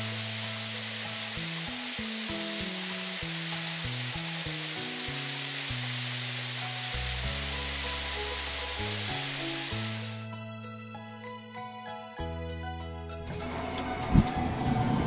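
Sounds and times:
water spraying from nozzles: 0.0s - 10.3s
background music with bass notes: 0.0s - 15.0s.

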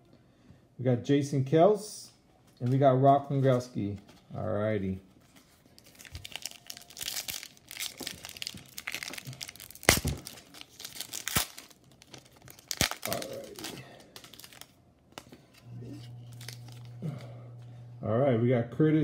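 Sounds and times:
low steady hum: 0.0s - 19.0s
foil wrapper crinkling and tearing: 5.4s - 15.4s, 16.0s - 17.3s.

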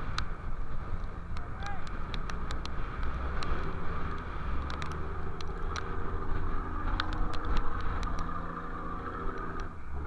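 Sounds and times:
boat engine rumbling: 0.0s - 10.0s
rough sea: 0.0s - 10.0s
wind: 0.0s - 10.0s
sharp ticks: 1.0s - 5.9s, 6.9s - 8.4s.

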